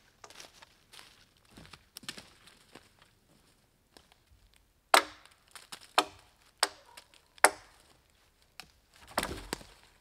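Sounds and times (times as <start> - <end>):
blade chopping wooden pole: 5.0 - 6.8, 7.4 - 7.8.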